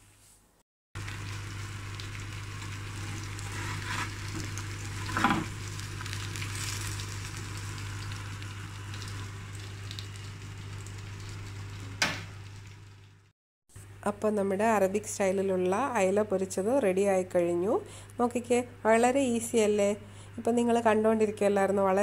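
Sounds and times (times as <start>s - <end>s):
fish sizzling in oil: 1.0s - 13.3s
spatula scraping pan: 3.4s - 4.2s.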